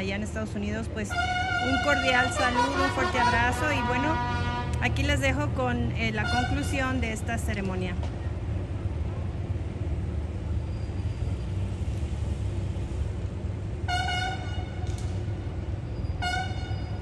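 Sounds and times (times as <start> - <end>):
horn blast: 1.0 - 5.1, 13.8 - 14.9.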